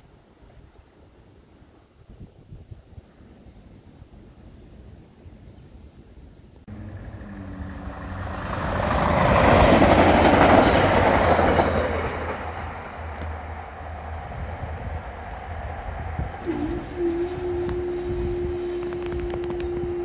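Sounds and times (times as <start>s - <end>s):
diesel train engine: 6.7s - 20.0s
wheel-on-rail noise: 6.7s - 20.0s.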